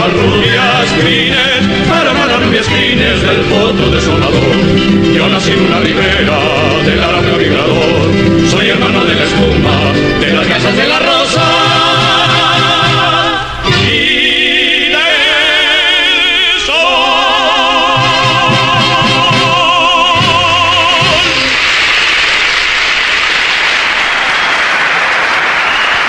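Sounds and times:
man singing with vibrato: 0.0 - 21.6
musical accompaniment: 0.0 - 22.0
audience applauding: 20.8 - 26.0.

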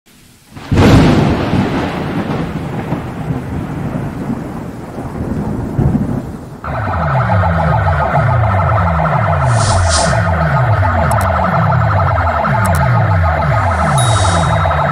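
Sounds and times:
loud music with falling bass sweeps: 6.7 - 14.9
noisy boom sound effect: 6.7 - 14.9.

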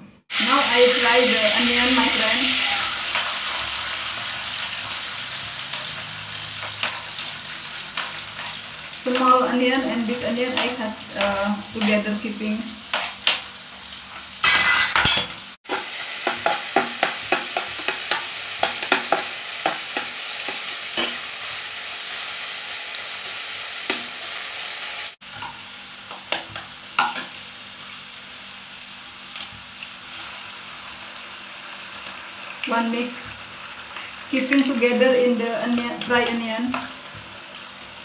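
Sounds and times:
onions sizzling in oil: 0.3 - 38.0
metal spatula scraping a pan: 1.8 - 3.9.

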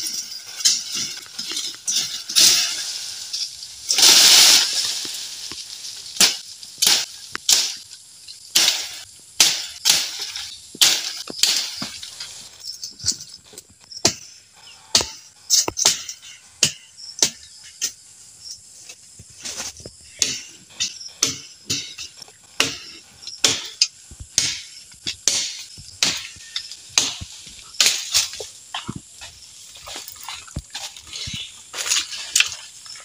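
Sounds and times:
leaves thrashing: 0.0 - 7.9
insect trill: 0.0 - 33.0.

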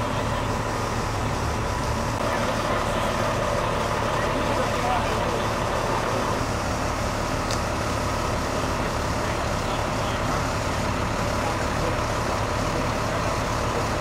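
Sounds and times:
diesel engine idling: 0.0 - 14.0.

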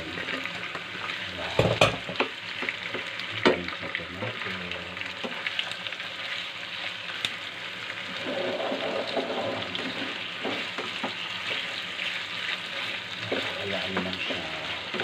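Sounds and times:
chicken sizzling in a frying pan: 0.0 - 15.0
spatula knocking on pan: 1.6 - 3.6.

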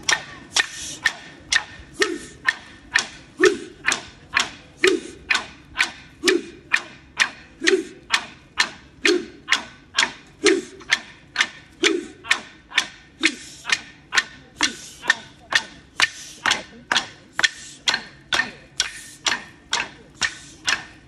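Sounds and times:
clapsticks struck in a beat: 13.2 - 20.9.

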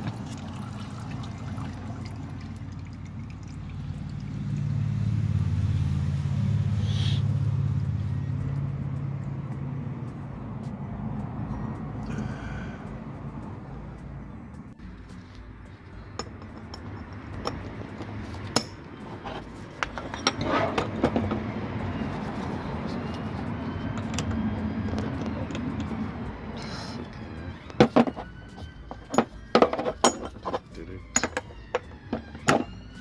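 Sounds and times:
metal hand tools clinking: 16.0 - 21.4, 22.2 - 24.4, 27.8 - 32.8.

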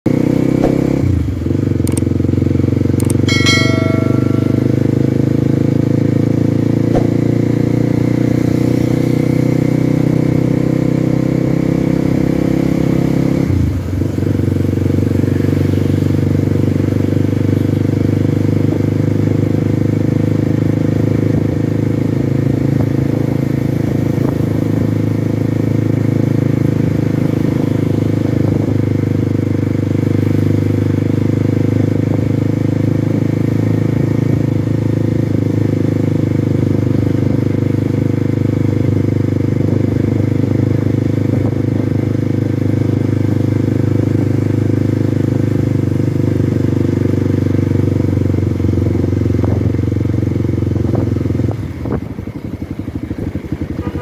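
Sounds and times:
dirt bike engine running: 0.1 - 10.6.

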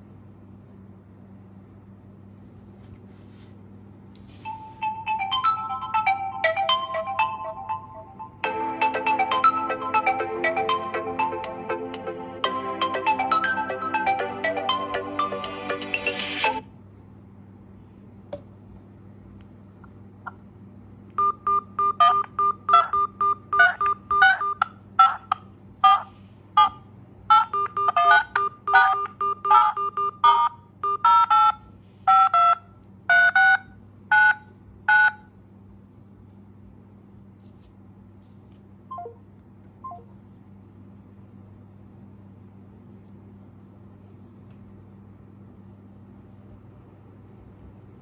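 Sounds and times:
phone ringtone: 4.4 - 16.6, 21.2 - 35.2
keypad touch-tone beeps: 21.2 - 25.2, 26.6 - 35.3.

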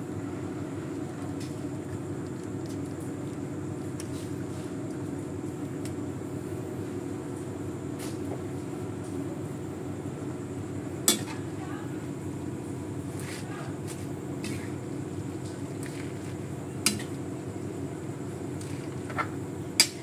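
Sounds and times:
metal ladle striking wok: 11.1 - 11.3.

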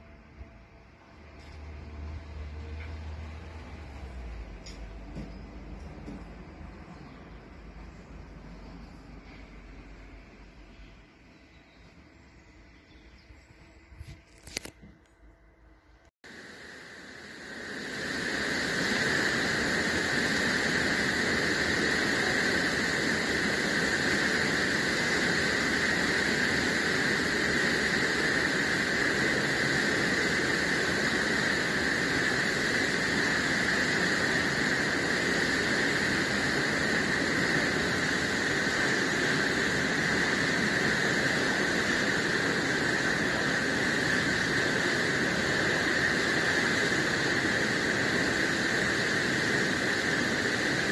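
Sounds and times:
spa pool hall rushing hiss: 16.3 - 50.9.

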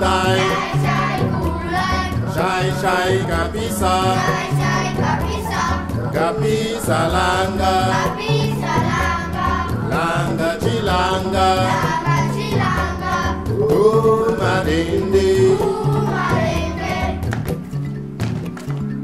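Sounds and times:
children singing in chorus: 0.0 - 17.4.

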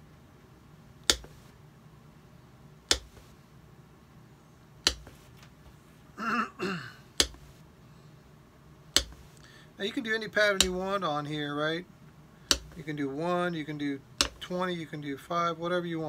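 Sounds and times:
hammer tapping nails into leather: 1.1 - 1.4, 2.9 - 3.3, 4.9 - 5.2, 7.2 - 7.5, 9.0 - 9.3, 12.5 - 12.8, 14.2 - 14.4.

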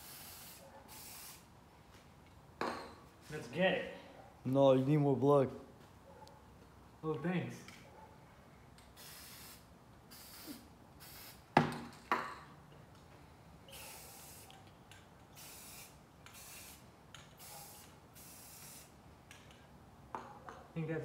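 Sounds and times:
aerosol spray can hissing: 0.0 - 1.5, 9.0 - 11.5, 13.7 - 14.6, 15.3 - 18.9.

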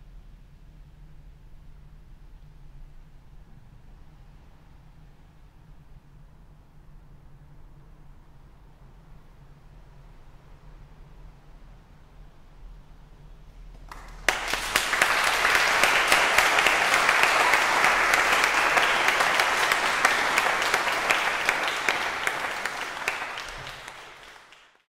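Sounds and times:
audience applauding: 13.8 - 24.9.

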